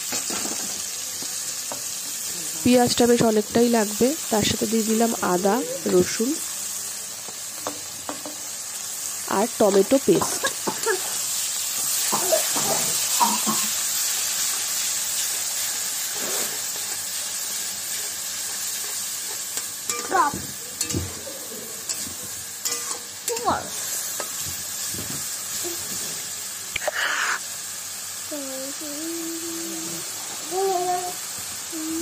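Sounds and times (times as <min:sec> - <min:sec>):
food sizzling in oil: 0:00.0 - 0:32.0
metal spatula scraping a pan: 0:16.0 - 0:17.0, 0:20.8 - 0:24.4.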